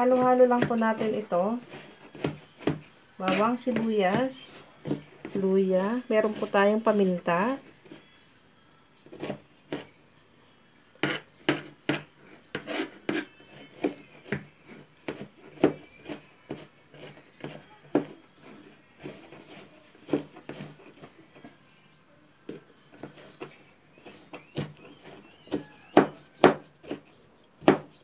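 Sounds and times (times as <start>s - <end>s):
knife chopping on plastic board: 0.0s - 6.5s, 11.0s - 21.1s, 22.5s - 28.0s.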